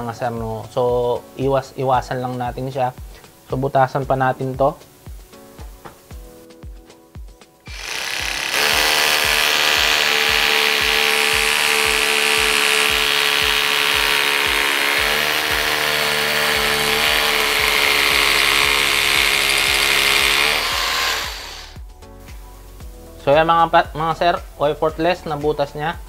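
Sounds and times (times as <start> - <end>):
rotary hammer drilling concrete: 7.7 - 21.8.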